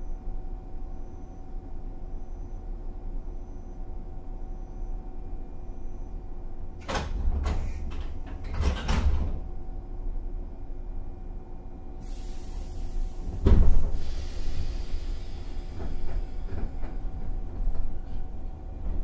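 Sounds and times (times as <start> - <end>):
train equipment hum: 0.0 - 19.0
train doors closing with hiss: 6.8 - 9.4, 12.0 - 18.2.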